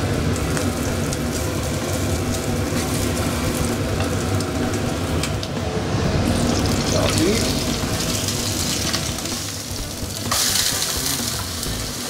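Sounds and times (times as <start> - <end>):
steady low hum: 0.0 - 10.3
meat sizzling in hot oil: 0.0 - 12.0.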